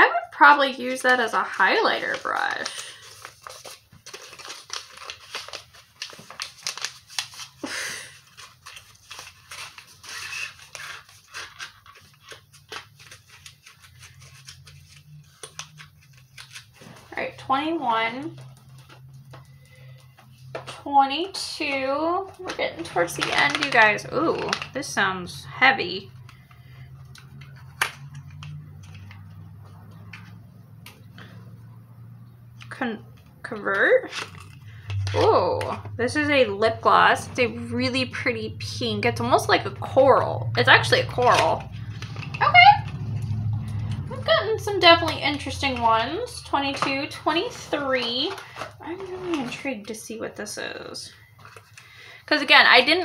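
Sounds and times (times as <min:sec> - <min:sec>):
plastic wrapper crinkling: 0:00.6 - 0:17.5, 0:18.2 - 0:21.4, 0:22.2 - 0:24.9, 0:26.0 - 0:31.6, 0:32.6 - 0:36.0, 0:44.9 - 0:50.0
wrapper rustling rush: 0:00.9 - 0:17.4.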